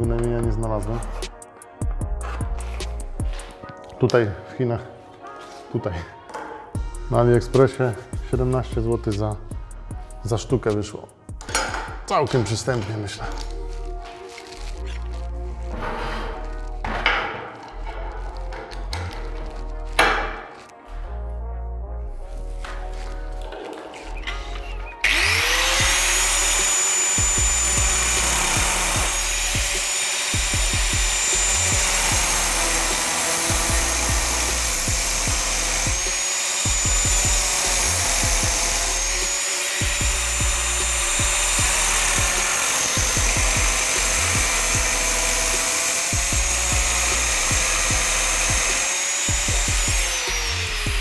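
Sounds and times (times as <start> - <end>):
angle grinder cutting steel: 25.0 - 51.0.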